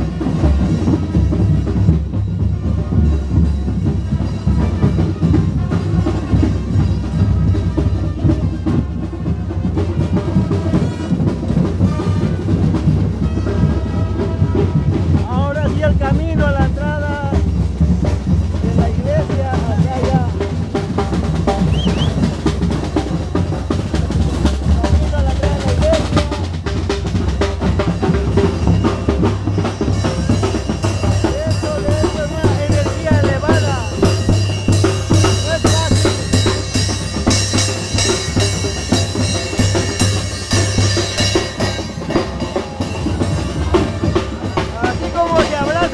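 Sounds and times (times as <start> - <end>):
drums beating: 0.0 - 45.9
held instrument notes: 25.5 - 45.9.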